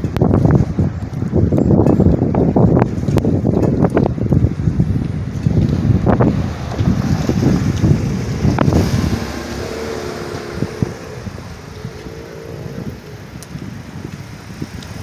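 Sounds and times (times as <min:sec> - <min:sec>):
wind buffeting microphone: 0:00.0 - 0:15.0
motor vehicle running: 0:02.9 - 0:14.2.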